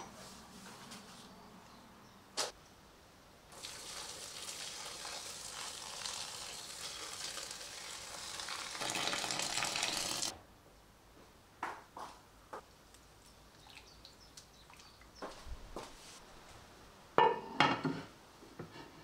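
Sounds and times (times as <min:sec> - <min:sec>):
water pouring into a bowl: 0:03.5 - 0:10.3.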